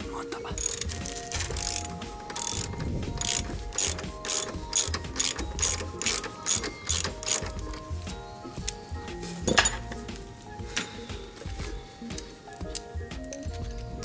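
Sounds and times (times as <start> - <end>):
socket ratchet wrench clicking: 0.6 - 7.9.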